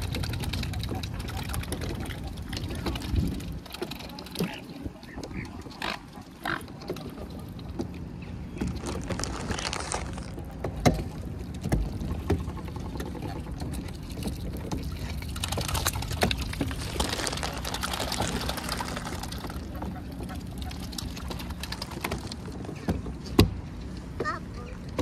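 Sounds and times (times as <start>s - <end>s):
swans pecking and shuffling: 0.0s - 25.0s
water lapping against pontoon: 0.0s - 25.0s.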